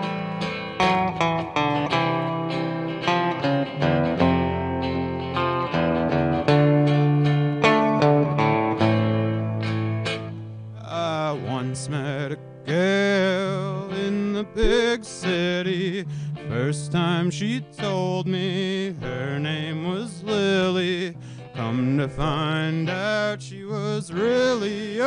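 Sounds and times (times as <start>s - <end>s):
bass guitar: 0.0s - 24.2s
electric guitar: 0.0s - 25.0s
strummed acoustic guitar: 0.0s - 25.0s
man singing: 10.8s - 25.0s.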